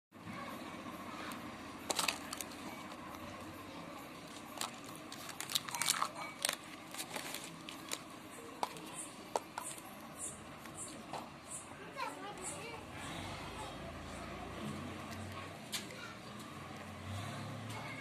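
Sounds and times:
steady background noise: 0:00.1 - 0:18.0
plastic wrapper crinkling: 0:01.9 - 0:03.1, 0:04.2 - 0:08.9.

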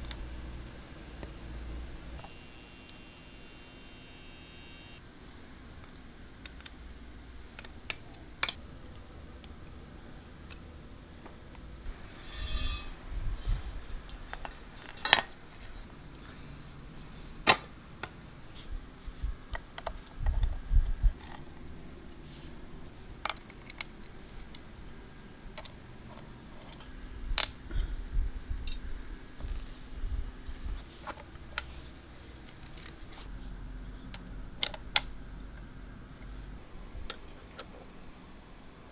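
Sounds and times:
metal parts clicking and clinking: 0:28.7 - 0:28.9.

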